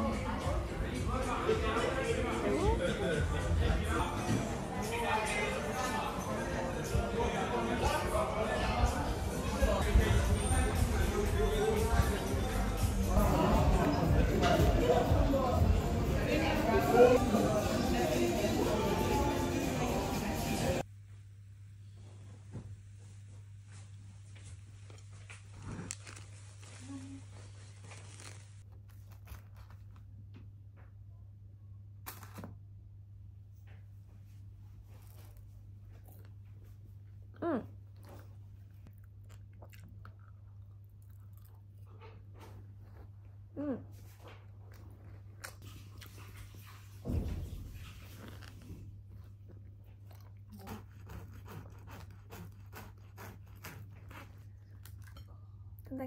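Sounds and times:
crunchy chewing: 0:24.8 - 0:30.0, 0:34.9 - 0:43.4, 0:44.1 - 0:46.6, 0:48.2 - 0:55.4
cling film rustling: 0:25.0 - 0:30.1.

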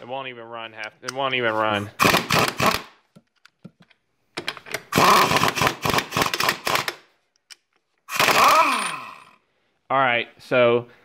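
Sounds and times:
pneumatic impact wrench hammering: 0:02.0 - 0:02.9, 0:04.7 - 0:07.0, 0:08.1 - 0:09.2.

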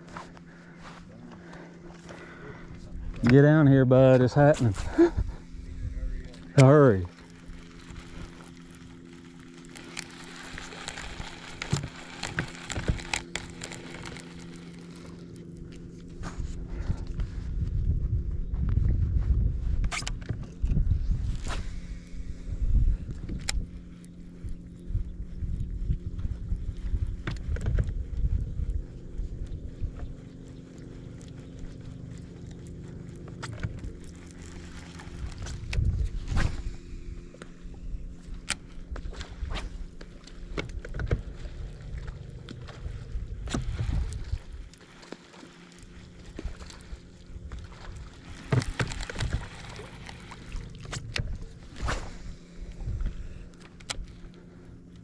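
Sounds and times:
boat motor humming: 0:00.0 - 0:55.0
sharp clicks and crackles: 0:06.3 - 0:16.2, 0:23.1 - 0:24.6, 0:25.6 - 0:36.5, 0:38.2 - 0:52.0, 0:53.0 - 0:55.0.

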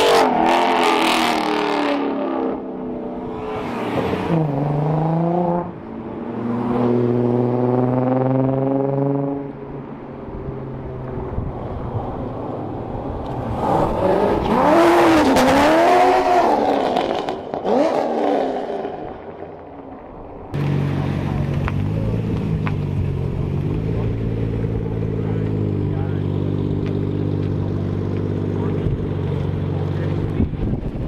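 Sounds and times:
cars passing: 0:00.0 - 0:31.0
engine droning: 0:00.0 - 0:31.0
engine revving: 0:03.2 - 0:05.8, 0:13.2 - 0:19.1.

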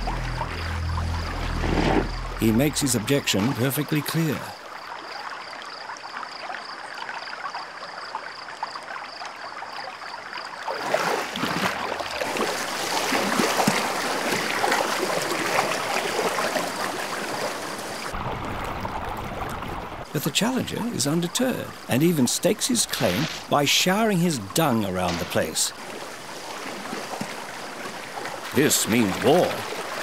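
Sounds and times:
faint high pulsing tone: 0:00.0 - 0:04.0
churning rushing water: 0:00.0 - 0:06.1, 0:10.4 - 0:30.0
hippos splashing in water: 0:10.6 - 0:30.0.

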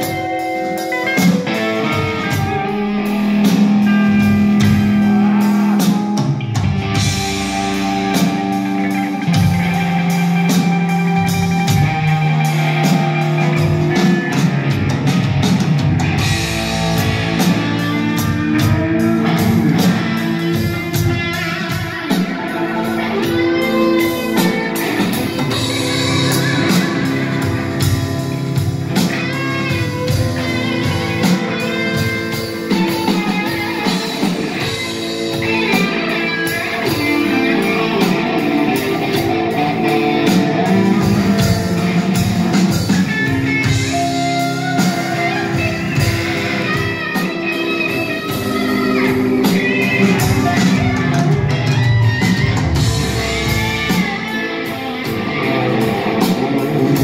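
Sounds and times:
electric guitars jamming: 0:00.0 - 0:57.0.

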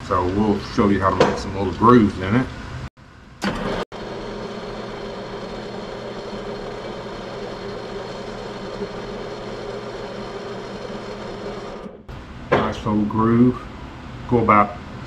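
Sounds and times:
lathe motor humming: 0:03.5 - 0:12.1.

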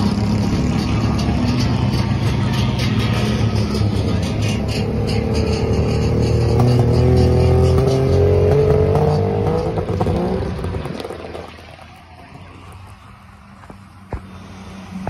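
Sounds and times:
racing car engine revving: 0:00.0 - 0:11.5.

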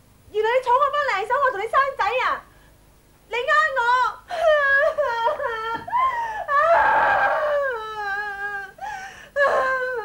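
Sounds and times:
gasping sobs: 0:04.3 - 0:10.0
woman crying and wailing: 0:04.3 - 0:10.0.

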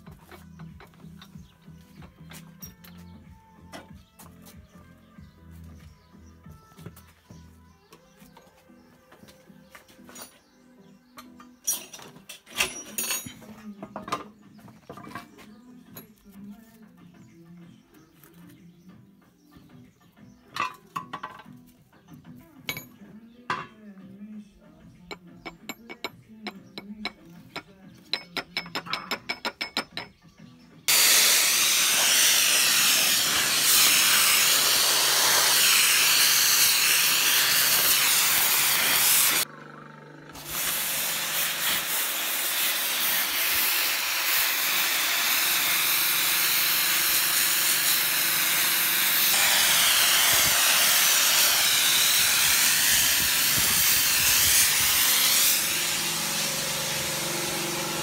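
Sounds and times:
pressure washer jet on steel: 0:30.9 - 0:39.4, 0:40.4 - 0:58.0.

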